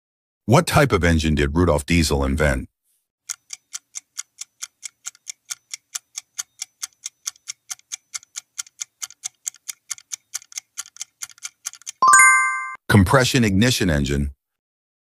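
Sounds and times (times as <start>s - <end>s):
countdown timer ticking: 12.0s - 12.8s.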